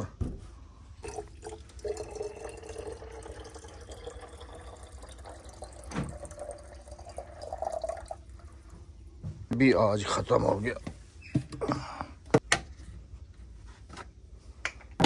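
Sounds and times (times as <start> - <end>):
liquid trickling into plastic reservoir: 1.0 - 8.4.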